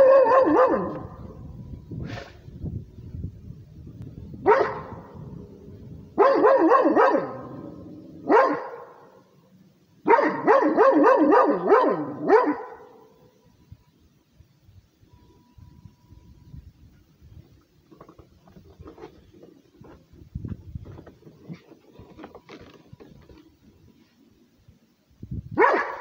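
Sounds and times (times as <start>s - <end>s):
dog barking: 0.0s - 1.2s, 4.4s - 5.1s, 6.2s - 9.2s, 10.0s - 13.1s, 25.6s - 26.0s.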